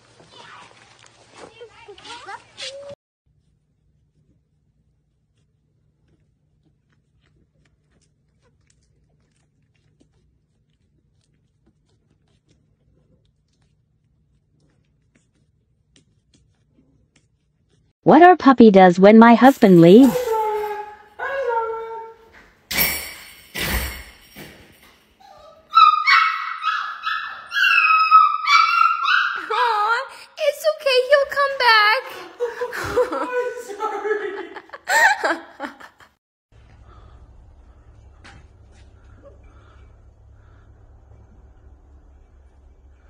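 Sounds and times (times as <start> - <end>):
puppies play-biting and tussling: 0.0 - 18.0
puppy whining: 20.1 - 22.4, 25.2 - 29.8
steady low hum: 36.5 - 43.0.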